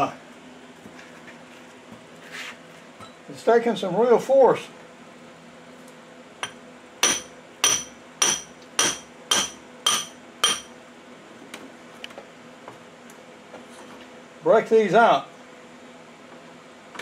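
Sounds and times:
hammer striking chisel: 0:06.4 - 0:10.7.

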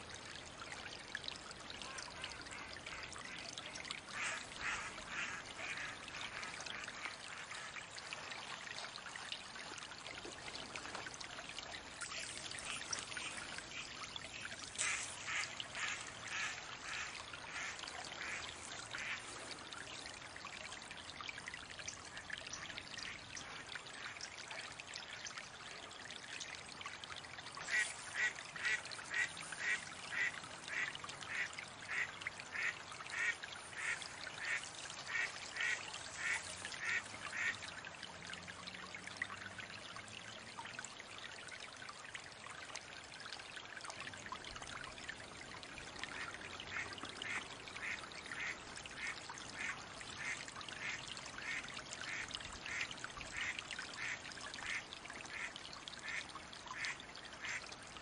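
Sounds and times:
ducks splashing in water: 0:04.1 - 0:07.8, 0:14.8 - 0:19.4, 0:27.6 - 0:37.7, 0:46.1 - 0:57.6.

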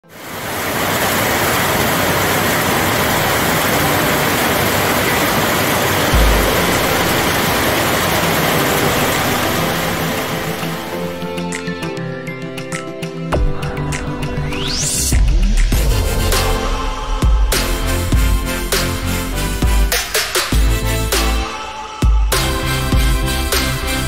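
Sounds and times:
heavy rain pouring: 0:00.0 - 0:11.4.

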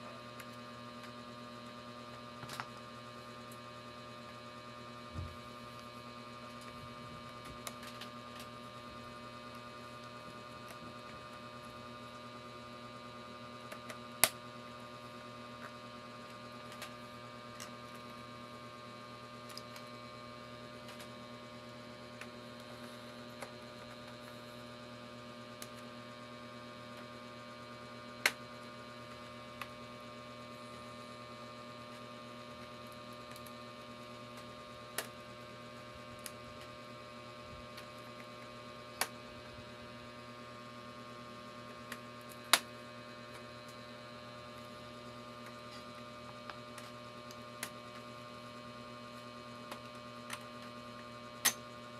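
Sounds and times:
electrical mains hum: 0:00.0 - 0:51.9.

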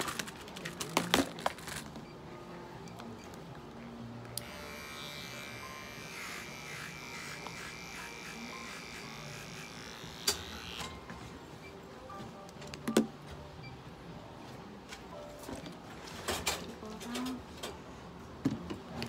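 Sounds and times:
electric pet clippers buzzing: 0:04.3 - 0:11.0.

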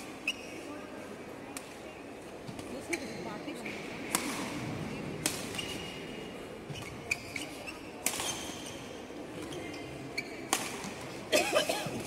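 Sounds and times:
rackets striking shuttlecock: 0:04.1 - 0:05.9, 0:08.0 - 0:08.6, 0:10.5 - 0:11.0.

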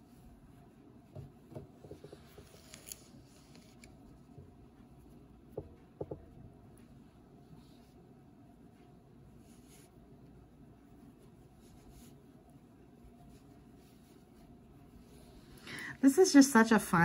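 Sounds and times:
yarn rubbing on crochet hook: 0:01.8 - 0:04.3, 0:09.3 - 0:15.6.

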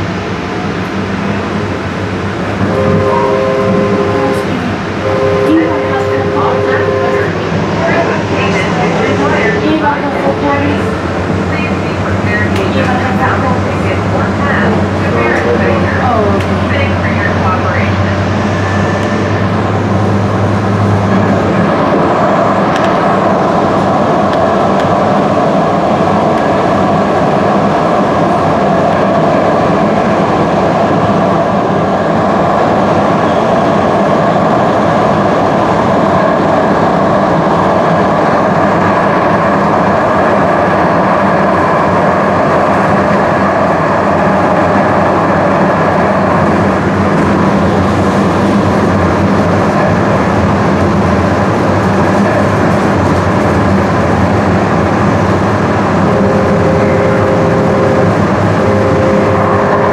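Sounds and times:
constant train hum: 0:00.0 - 0:59.9
train wheels rumbling on rails: 0:00.0 - 0:59.9.

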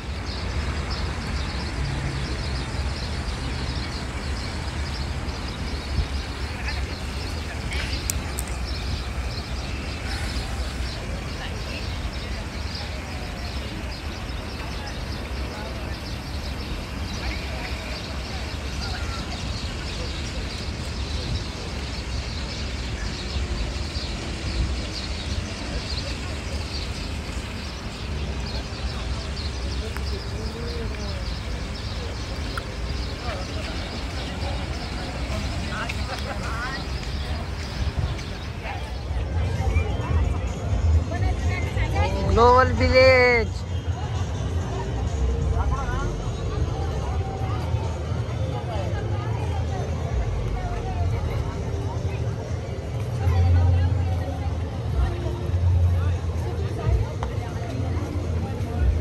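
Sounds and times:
small birds chirping: 0:00.0 - 0:43.9
crowd murmuring: 0:00.0 - 0:59.0.

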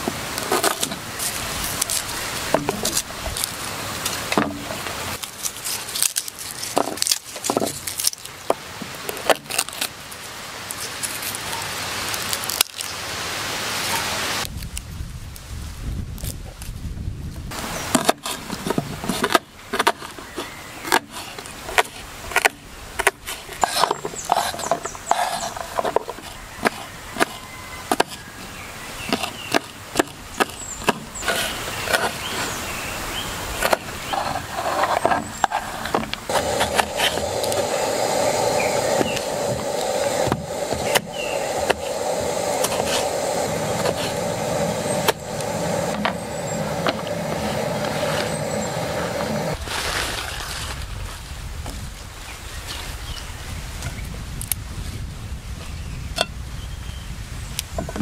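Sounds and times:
fire rushing and crackling: 0:00.0 - 0:19.4, 0:21.2 - 0:52.0
sticks snapping and knocking: 0:00.4 - 0:09.9, 0:12.1 - 0:13.0.

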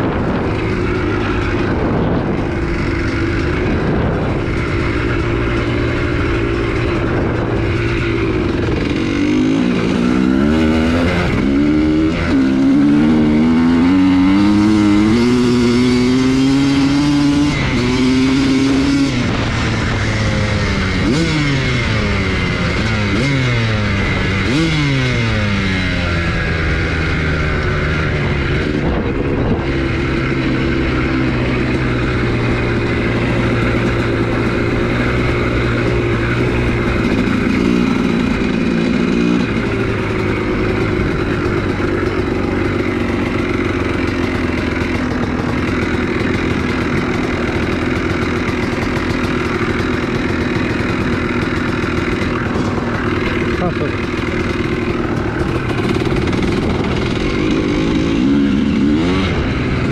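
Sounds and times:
two-stroke motorcycle engine revving: 0:00.0 - 0:59.9.

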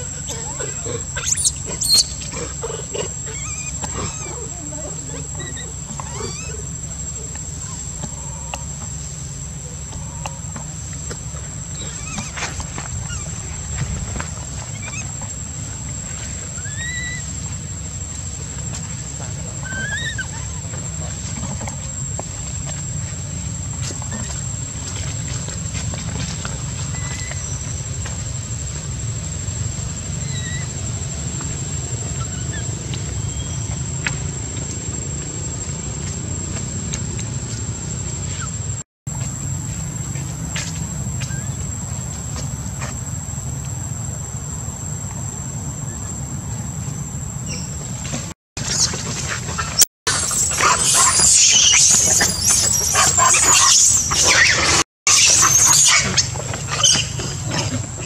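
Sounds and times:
monkeys screaming shrilly: 0:00.0 - 0:08.5, 0:11.7 - 0:13.6, 0:14.6 - 0:15.2, 0:16.6 - 0:17.4, 0:19.5 - 0:21.1, 0:30.2 - 0:30.8, 0:32.1 - 0:33.7, 0:49.5 - 0:57.8
faint chirps: 0:50.1 - 0:57.2.

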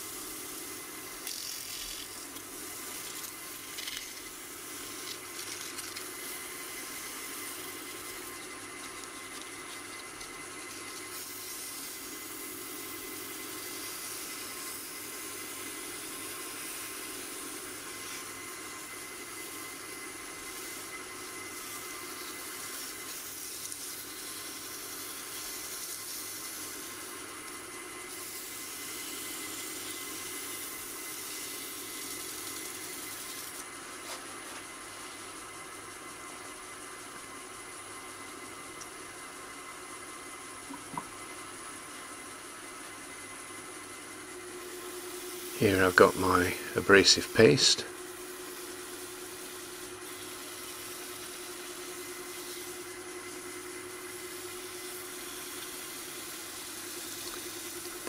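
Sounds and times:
sandpaper sanding hiss: 0:00.0 - 0:10.0, 0:10.6 - 0:18.4, 0:19.2 - 0:27.3, 0:28.1 - 0:34.6, 0:44.7 - 0:47.7, 0:48.4 - 0:53.4, 0:54.2 - 0:58.0
wood lathe running: 0:00.0 - 0:33.7, 0:44.4 - 0:58.0.

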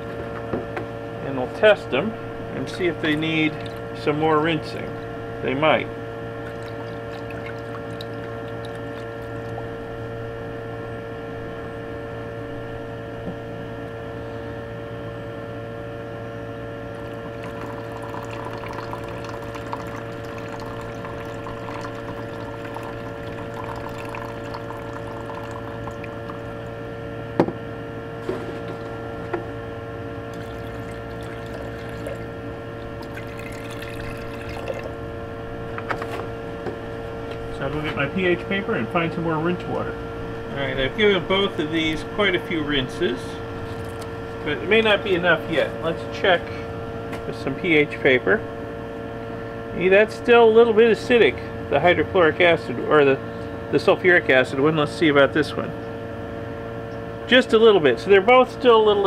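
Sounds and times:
steady hum: 0:00.0 - 0:59.0
water pouring into bucket: 0:02.7 - 0:04.0, 0:06.4 - 0:09.8, 0:16.9 - 0:26.7, 0:28.2 - 0:29.2, 0:30.2 - 0:35.0, 0:43.6 - 0:44.4
water pouring into glass beaker: 0:06.4 - 0:09.8, 0:16.9 - 0:26.8, 0:28.4 - 0:29.0, 0:30.2 - 0:35.0, 0:43.6 - 0:44.1.

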